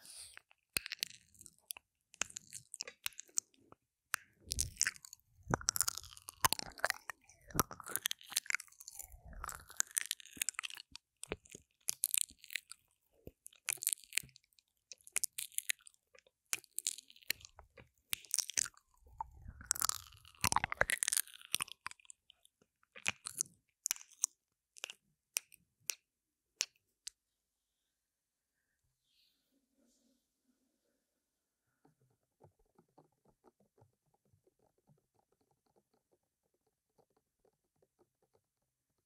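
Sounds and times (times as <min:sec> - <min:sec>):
wet mouth sounds: 0:00.0 - 0:03.6, 0:04.2 - 0:22.2, 0:23.0 - 0:26.0.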